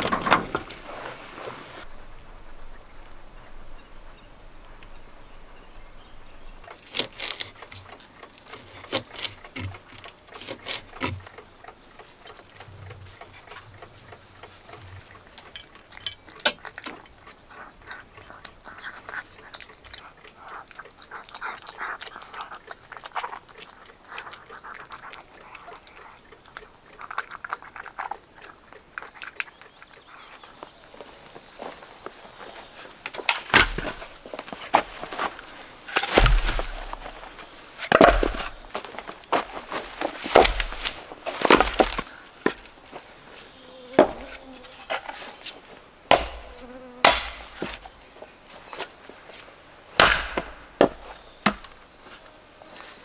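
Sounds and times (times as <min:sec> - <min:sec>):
dog chewing: 0:06.6 - 0:43.2.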